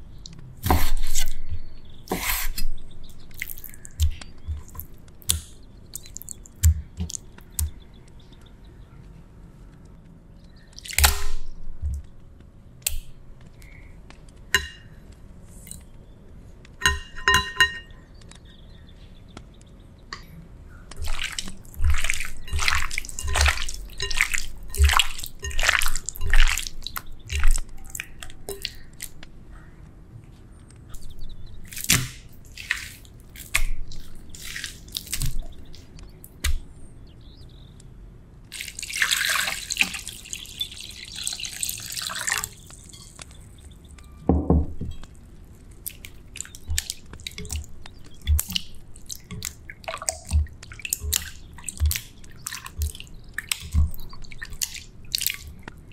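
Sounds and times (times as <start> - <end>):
wet squelching of kneaded chicken: 0.0 - 8.1, 10.5 - 11.4, 20.9 - 29.3, 30.9 - 36.7, 38.5 - 43.8, 45.0 - 55.9
water pouring into bowl: 21.0 - 28.8, 38.5 - 43.2
hands swishing chicken in water: 21.0 - 29.2, 31.6 - 35.8, 45.8 - 55.7.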